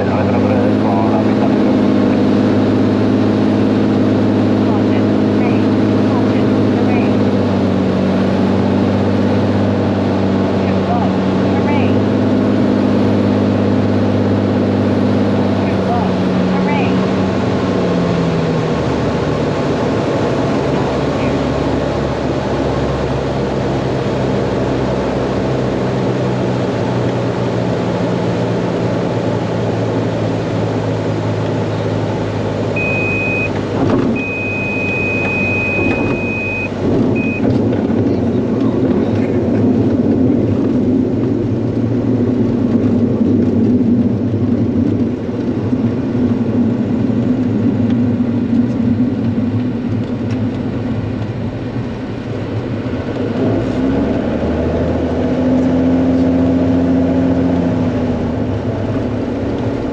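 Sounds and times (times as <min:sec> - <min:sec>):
propeller airplane engine: 0:00.0 - 0:59.9
wheels rumbling on runway: 0:00.0 - 0:59.9
stall warning horn beeps: 0:32.8 - 0:37.5.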